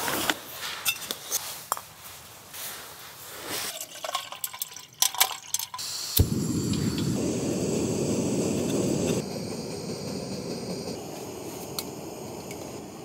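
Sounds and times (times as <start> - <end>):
gas burner hissing: 5.8 - 13.0.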